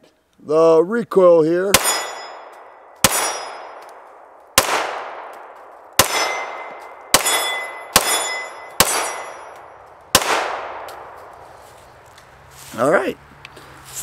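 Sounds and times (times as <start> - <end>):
pistol shots: 1.7 - 11.2
metallic ring of steel targets: 1.8 - 3.8, 6.0 - 9.8.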